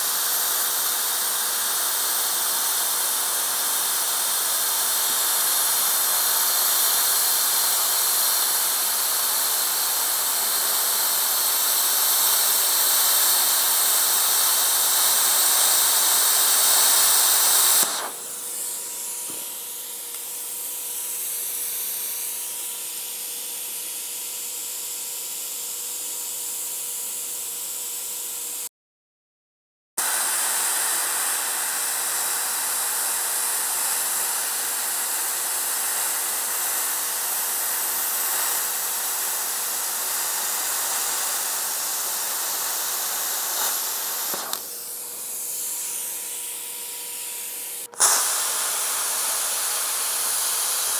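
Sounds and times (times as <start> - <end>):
plasma cutter hissing: 0.0 - 28.4, 30.0 - 50.9.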